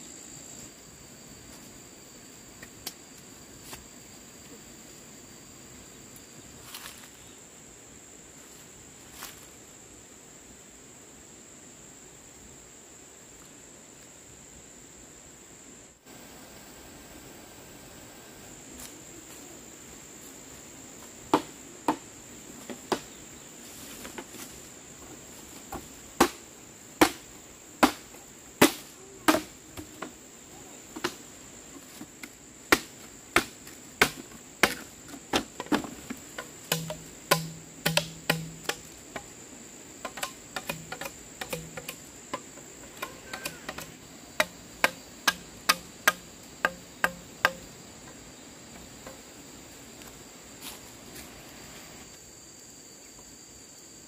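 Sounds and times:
crickets chirring: 0.0 - 54.0
sharp strikes: 36.7 - 38.9.

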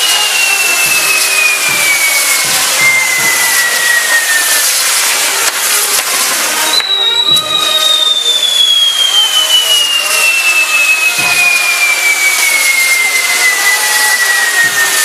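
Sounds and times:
falling whistle: 0.0 - 5.3, 6.5 - 15.0
fireworks hissing rush: 0.0 - 15.0.

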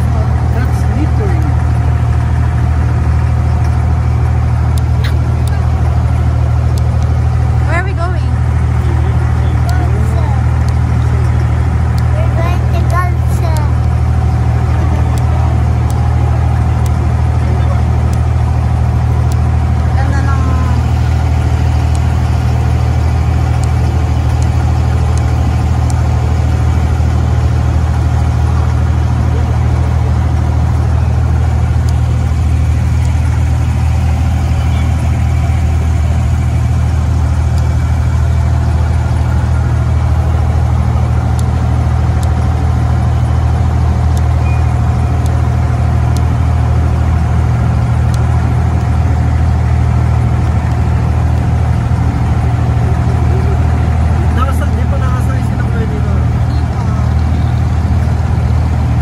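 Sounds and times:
boat diesel engine droning: 0.0 - 59.0.

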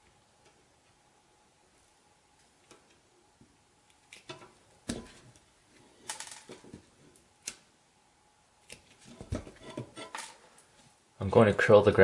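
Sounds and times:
wire strippers clicking and scraping: 8.7 - 10.7.

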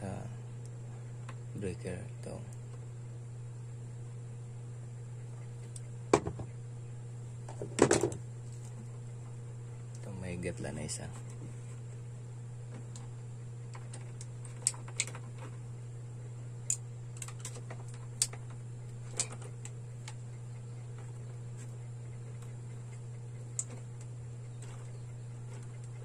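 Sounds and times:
steady low hum: 0.0 - 26.0
pliers and wire clicking: 13.7 - 15.2, 16.6 - 18.5.

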